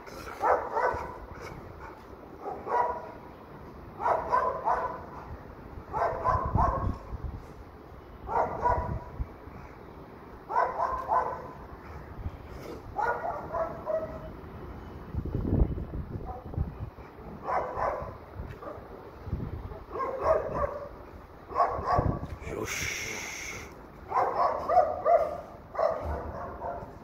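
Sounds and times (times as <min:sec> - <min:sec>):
dog barking: 0:00.4 - 0:01.2, 0:02.4 - 0:03.2, 0:04.0 - 0:05.3, 0:05.9 - 0:07.0, 0:08.3 - 0:09.1, 0:10.5 - 0:11.6, 0:13.0 - 0:14.3, 0:16.3 - 0:16.5, 0:17.4 - 0:18.8, 0:19.7 - 0:22.2, 0:24.1 - 0:27.0.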